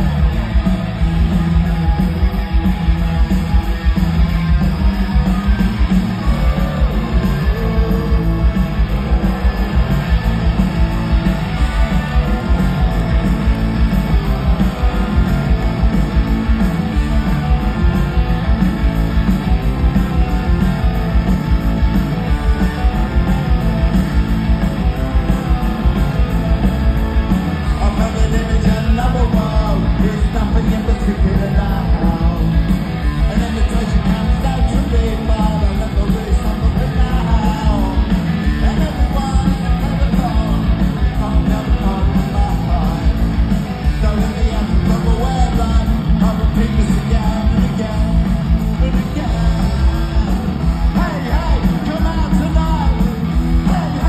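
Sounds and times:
live rock band playing: 0.0 - 54.0
man singing: 6.2 - 10.0, 27.6 - 54.0.

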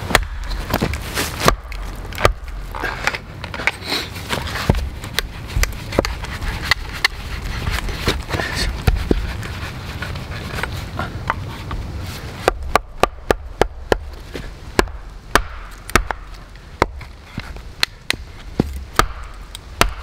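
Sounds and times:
axe scraping in log: 0.1 - 12.6, 15.7 - 19.6
sharp wooden knocks on chopping block: 12.5 - 14.1, 14.8 - 16.2.

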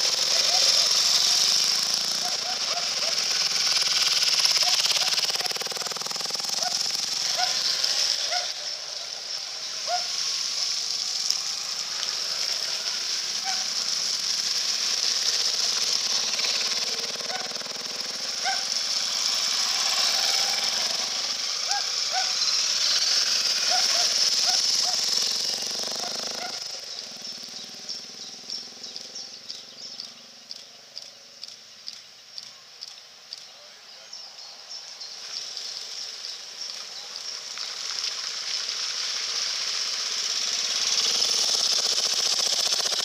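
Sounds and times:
running water rushing: 0.0 - 27.3, 35.2 - 43.0
motorcycle engines running: 0.0 - 43.0
tyres splashing through water: 35.8 - 41.7.

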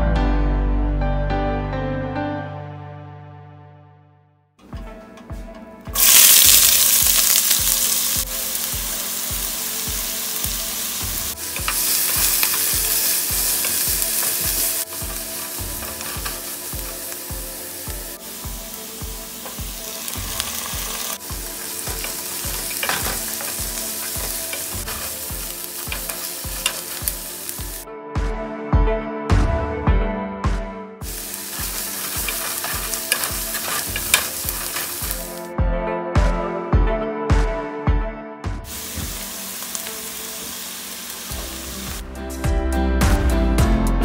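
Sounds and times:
onions sizzling in hot oil: 6.0 - 27.8, 31.0 - 35.5, 38.7 - 42.1
spatula knocking and scraping pot: 31.6 - 35.2.

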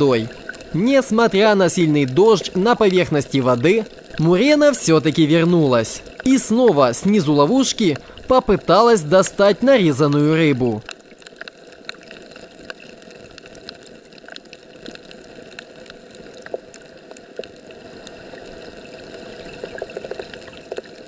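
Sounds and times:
muffled underwater hiss: 0.0 - 10.2
small underwater clicks and crackles: 0.0 - 21.0.

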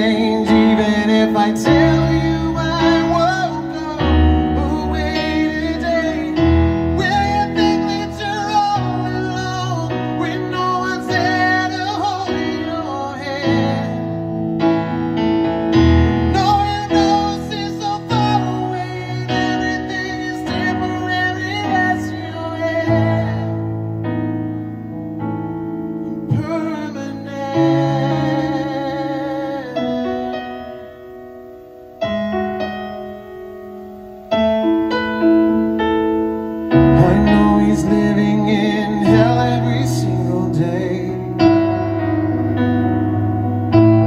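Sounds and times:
man singing: 0.0 - 14.4, 16.2 - 24.2, 26.2 - 30.6, 36.8 - 42.5
sustained keyboard chords: 0.0 - 44.0.

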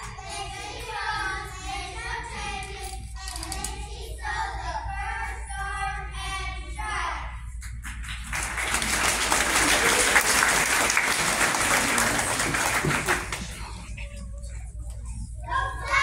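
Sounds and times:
children singing as a choir: 0.0 - 7.2
people clapping: 7.6 - 14.0.

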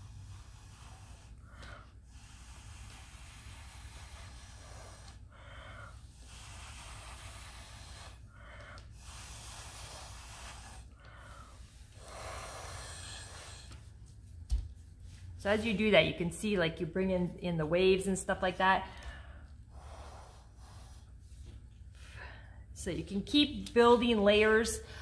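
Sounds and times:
breath blown through a straw: 0.0 - 14.0, 18.8 - 22.5.

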